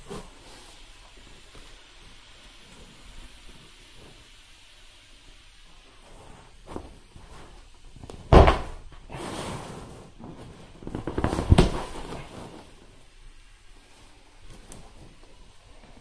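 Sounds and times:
air hissing out: 0.0s - 10.3s.

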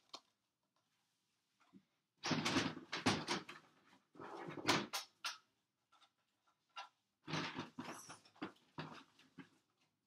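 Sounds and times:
rustling and clattering handling noise: 5.8s - 10.0s.

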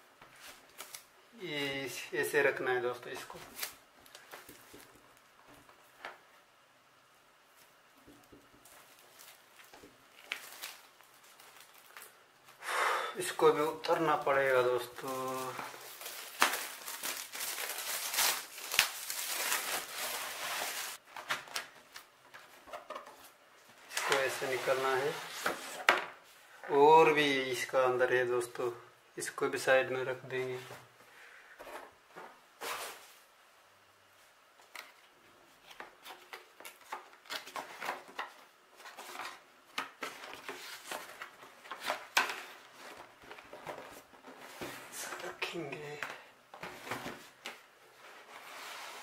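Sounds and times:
plastic shrink-wrap crinkling: 8.6s - 12.2s, 14.2s - 21.0s.

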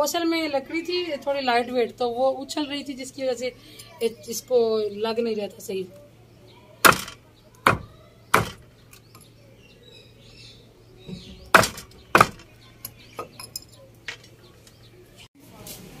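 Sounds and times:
cleaver chopping on wooden board: 6.8s - 8.6s, 11.5s - 12.4s.

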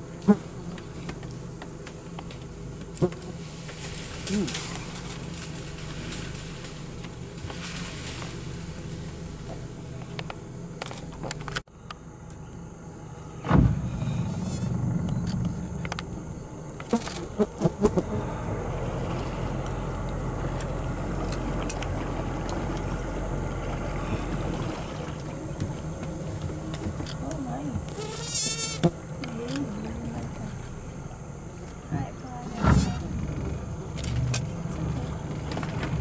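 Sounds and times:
engine humming: 0.0s - 36.0s
sharp thump: 13.4s - 15.1s.

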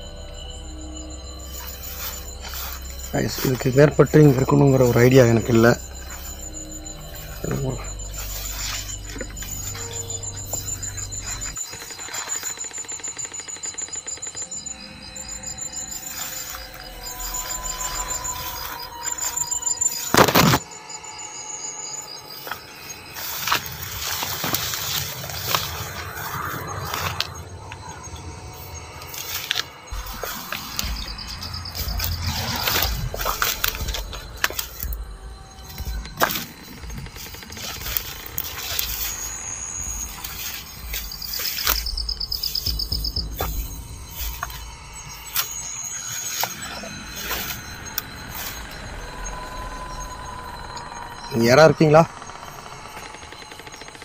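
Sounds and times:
low rumble: 0.0s - 11.6s, 23.7s - 51.4s
background music: 0.0s - 12.4s
night insects trilling: 0.0s - 54.0s
sharp crackles: 22.4s - 48.8s.

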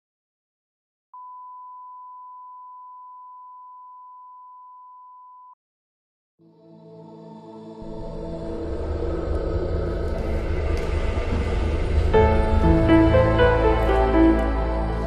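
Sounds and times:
music: 6.4s - 15.0s.

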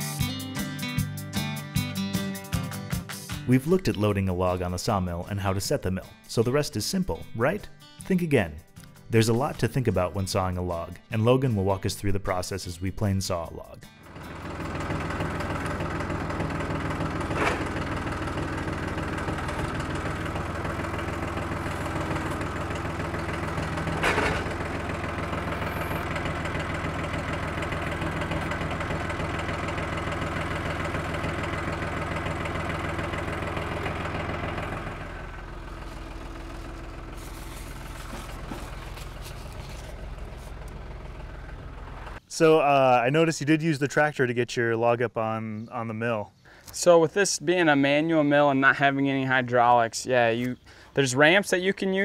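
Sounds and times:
tractor engine running: 14.0s - 42.2s
short metal clanks: 21.9s - 24.9s.

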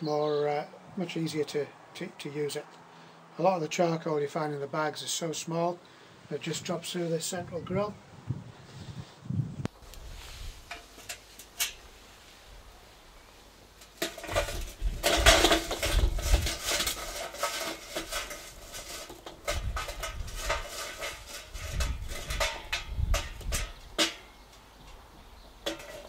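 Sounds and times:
charcoal briquettes clattering: 9.8s - 26.0s.

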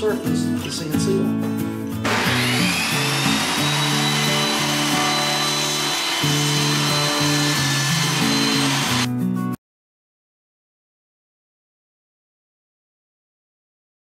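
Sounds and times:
table saw cutting board: 2.0s - 9.1s.

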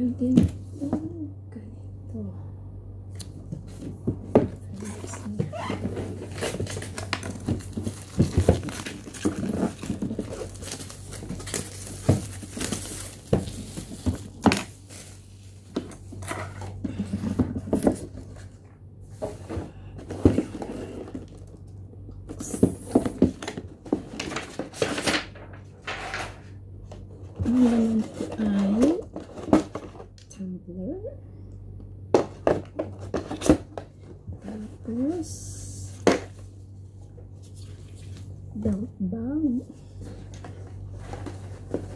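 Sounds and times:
packaging crinkling and tearing: 4.8s - 15.2s.

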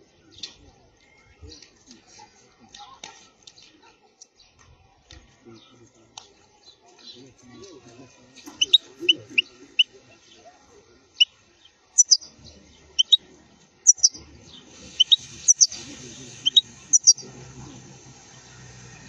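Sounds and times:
bird chirping: 7.0s - 10.5s, 11.1s - 17.4s.

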